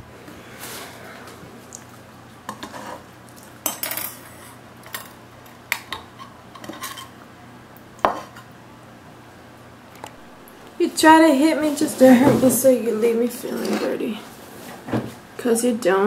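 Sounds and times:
cutlery scraping plate: 0:02.5 - 0:03.1, 0:06.2 - 0:07.2, 0:08.1 - 0:08.5.

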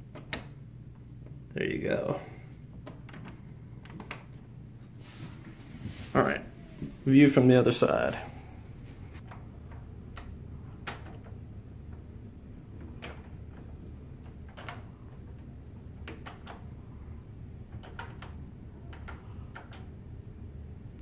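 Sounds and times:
steady low hum: 0:00.0 - 0:21.0
door lock clicking: 0:00.1 - 0:00.6, 0:09.2 - 0:12.1, 0:12.7 - 0:20.1.

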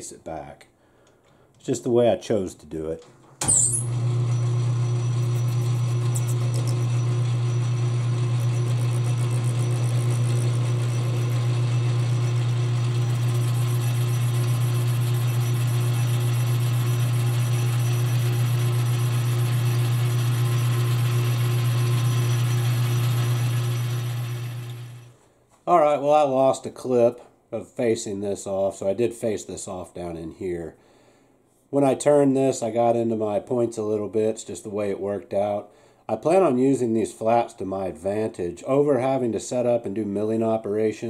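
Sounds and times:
metal lathe humming: 0:03.5 - 0:25.1.

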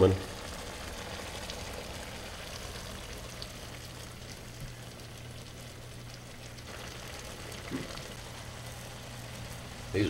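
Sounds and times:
pan sauce sizzling: 0:00.0 - 0:10.0.

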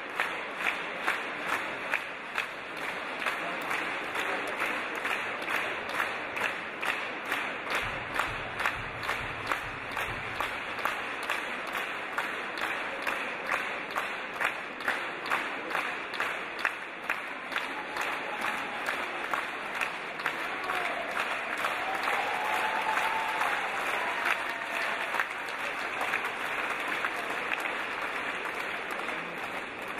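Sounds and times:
audience applauding: 0:00.0 - 0:29.9
rhythmic clapping in time: 0:00.0 - 0:29.9.

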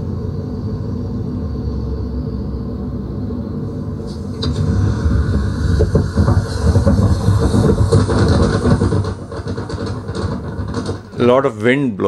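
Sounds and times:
vehicle road noise rumble: 0:00.0 - 0:11.7
wind rushing over microphone: 0:03.7 - 0:11.2.

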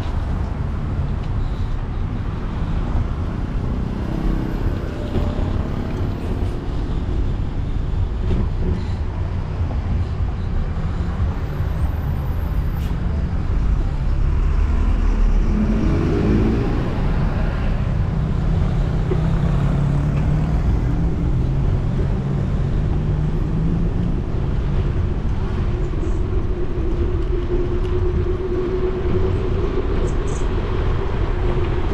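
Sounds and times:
road traffic passing: 0:00.0 - 0:31.9
wind rumbling on microphone: 0:00.0 - 0:31.9
vehicle engine rising in pitch: 0:14.1 - 0:24.0.

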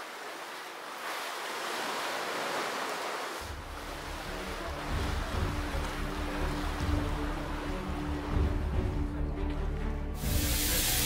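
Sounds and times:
waves breaking against sea wall: 0:00.0 - 0:08.3.

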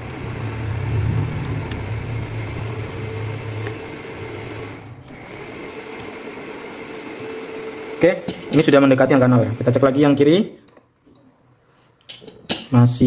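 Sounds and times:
electrical hum: 0:00.0 - 0:08.0.

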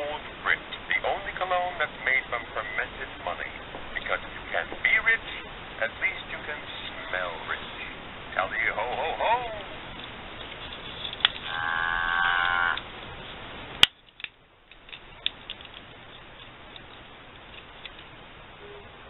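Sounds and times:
electronic moo from speaker: 0:11.5 - 0:12.8.

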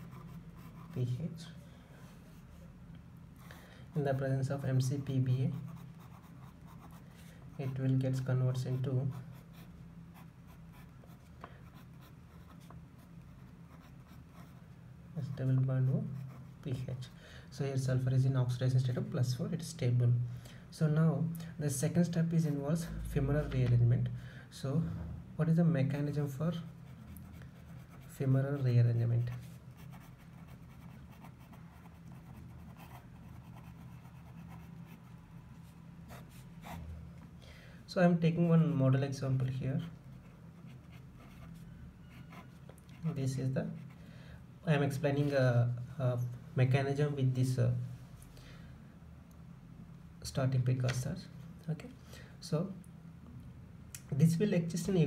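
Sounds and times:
steady low hum: 0:00.0 - 0:55.0
pen scratching on paper: 0:05.5 - 0:07.0.

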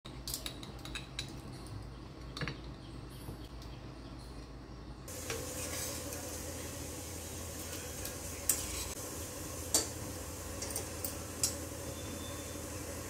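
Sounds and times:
stirring in a cooking pot: 0:05.1 - 0:11.8
sizzling hiss: 0:05.1 - 0:13.0.

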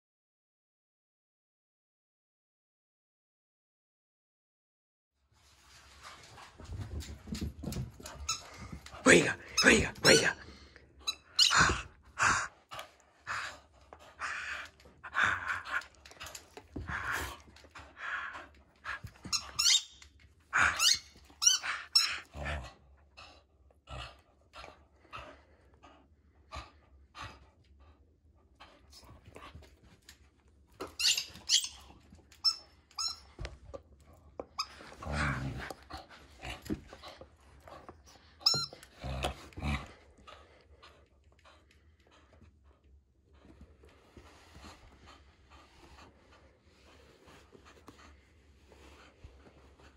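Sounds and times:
rubber ball squeaking: 0:11.1 - 0:11.8, 0:19.3 - 0:20.0, 0:30.9 - 0:33.4, 0:38.4 - 0:38.8.

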